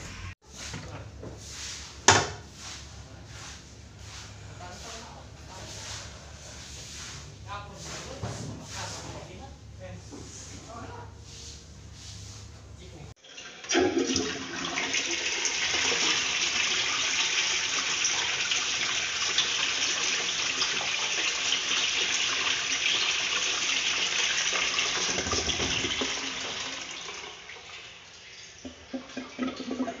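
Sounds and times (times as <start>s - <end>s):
toilet flushing: 13.1s - 30.0s.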